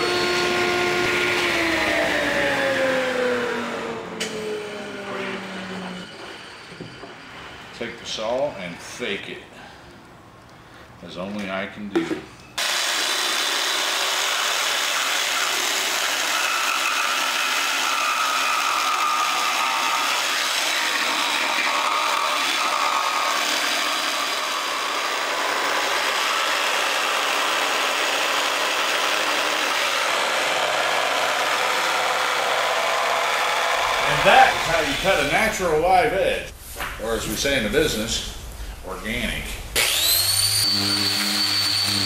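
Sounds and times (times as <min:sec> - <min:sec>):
jigsaw cutting wood: 0:00.0 - 0:06.1, 0:12.6 - 0:35.4, 0:39.8 - 0:42.0.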